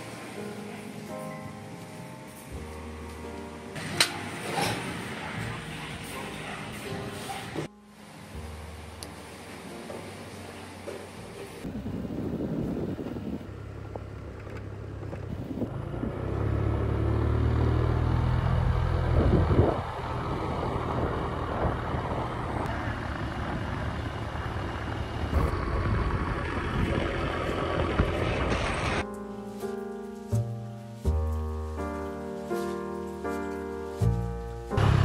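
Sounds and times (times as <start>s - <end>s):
music: 0.0s - 11.7s, 29.0s - 34.8s
motorbike running: 10.8s - 29.0s, 34.8s - 35.0s
wind rushing over microphone: 11.6s - 14.1s, 15.1s - 16.3s, 19.0s - 29.0s.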